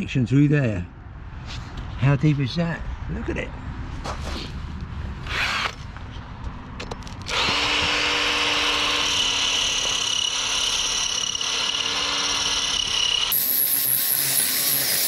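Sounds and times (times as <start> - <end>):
power drill grinding through ice: 7.3 - 15.0.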